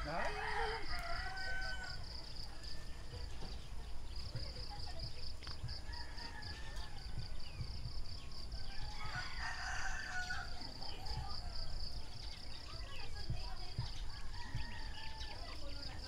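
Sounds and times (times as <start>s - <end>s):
rooster crowing: 0.0s - 2.2s, 5.7s - 7.6s, 8.5s - 10.8s, 14.3s - 15.6s.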